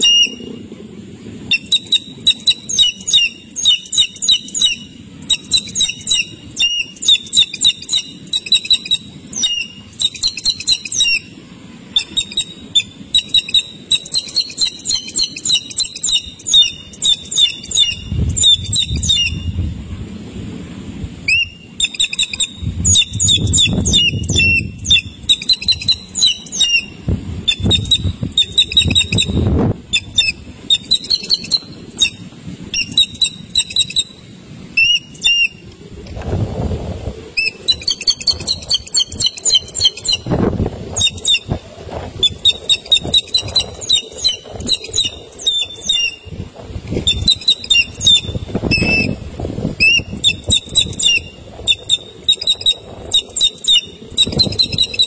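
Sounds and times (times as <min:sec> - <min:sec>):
hawk nestlings peeping: 0:37.4 - 0:41.6, 0:47.1 - 0:49.1.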